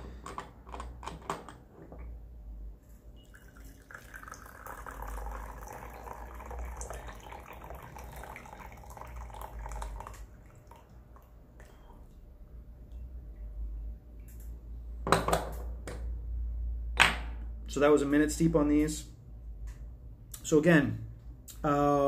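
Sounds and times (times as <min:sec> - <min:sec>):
tea trickling into bowls: 0:03.2 - 0:12.2.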